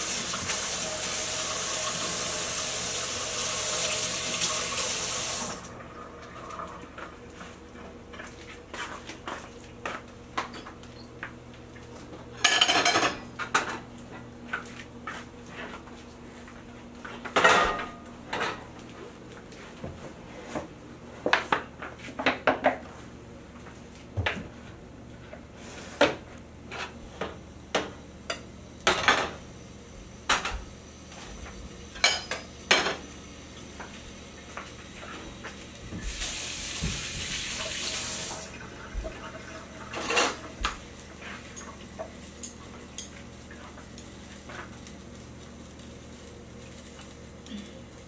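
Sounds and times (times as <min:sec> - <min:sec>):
kitchen bowls and pans clinking: 0:12.4 - 0:13.8, 0:31.9 - 0:33.0, 0:39.9 - 0:40.6.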